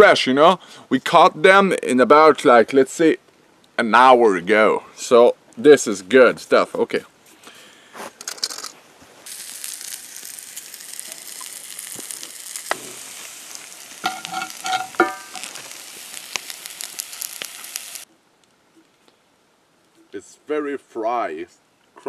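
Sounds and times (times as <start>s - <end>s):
fish frying in oil: 9.3s - 18.1s.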